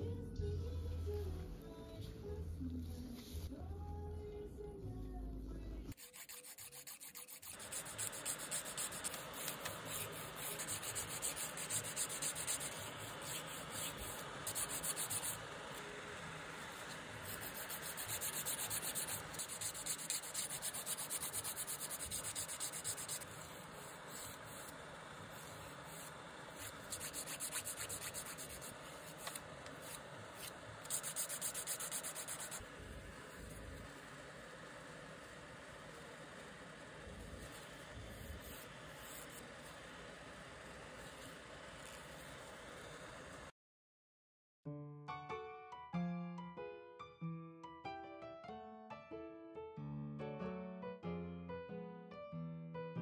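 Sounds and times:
nail file rasping on fingernails: 6.0s - 15.4s, 17.3s - 23.3s, 26.6s - 29.4s, 30.4s - 32.6s.

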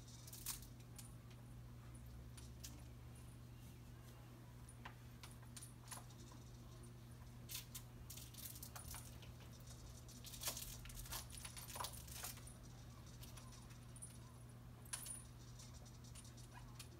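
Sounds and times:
steady low hum: 0.0s - 16.9s
baby jumper rattling and clicking: 7.5s - 14.2s.

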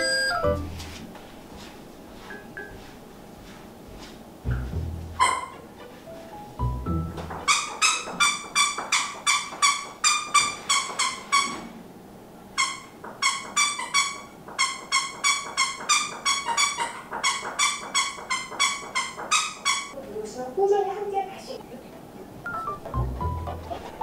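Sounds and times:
squeaky toy squeaks: 5.2s - 5.8s, 7.3s - 11.6s, 12.6s - 20.0s.

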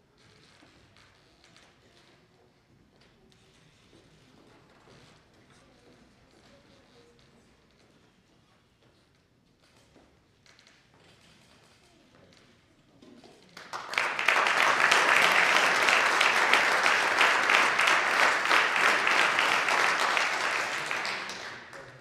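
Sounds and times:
audience applauding: 13.6s - 22.0s.

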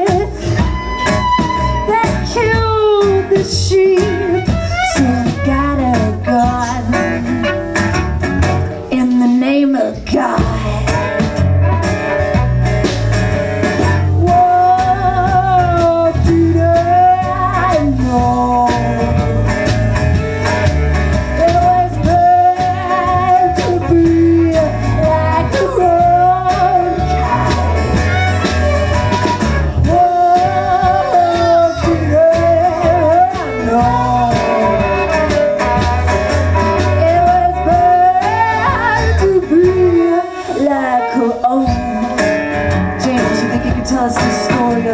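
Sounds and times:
bowed violin melody: 0.0s - 6.4s
folk-rock band playing: 0.0s - 44.9s.

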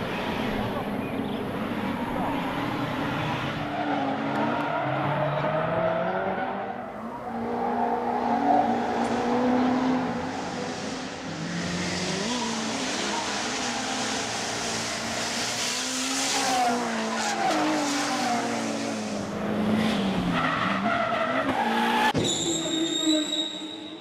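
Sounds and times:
car engines revving: 0.0s - 22.2s
tyre squeal: 20.4s - 24.0s.

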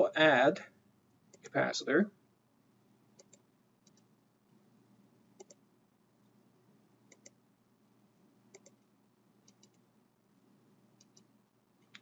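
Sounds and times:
computer mouse clicks: 3.2s - 4.1s, 5.4s - 5.6s, 7.1s - 7.4s, 8.5s - 9.8s, 11.0s - 12.0s.

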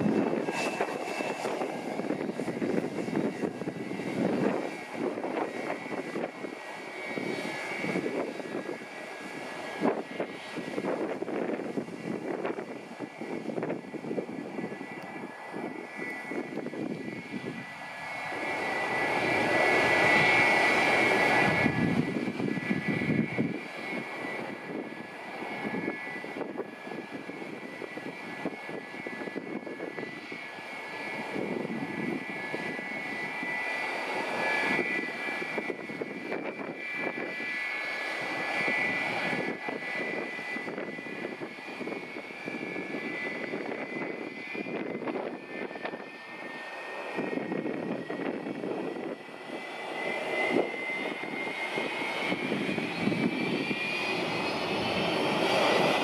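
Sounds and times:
jet engines whining and rumbling: 0.0s - 56.0s.

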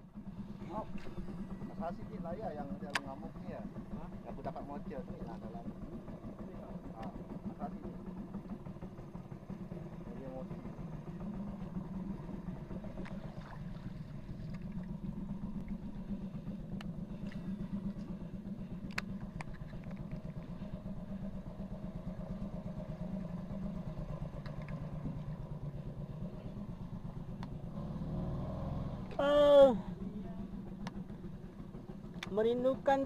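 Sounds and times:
small boat engine running: 0.0s - 33.0s.

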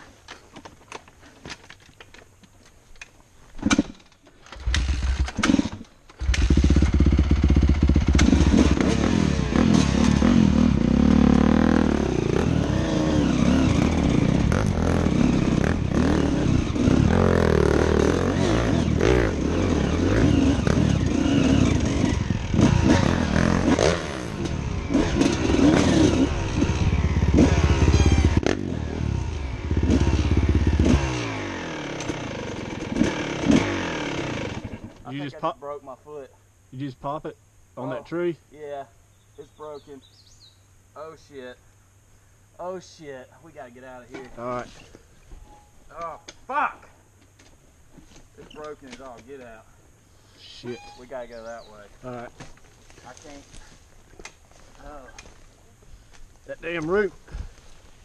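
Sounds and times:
dirt bike engine revving: 4.6s - 35.0s.

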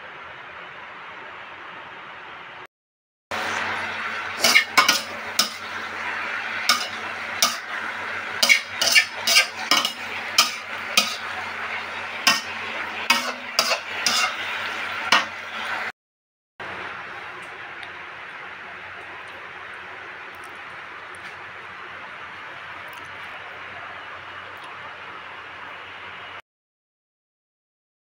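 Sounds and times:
cabbage sizzling in a wok: 3.4s - 15.9s
metal spatula scraping a wok: 4.4s - 15.9s.

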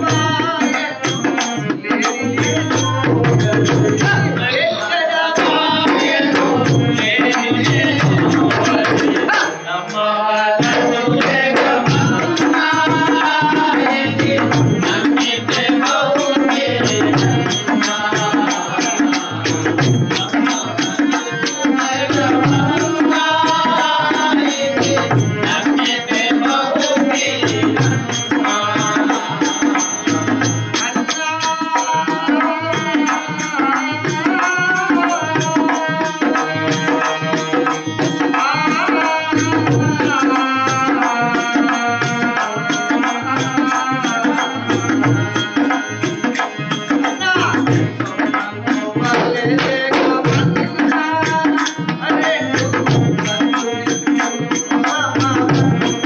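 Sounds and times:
tabla: 0.0s - 56.0s.

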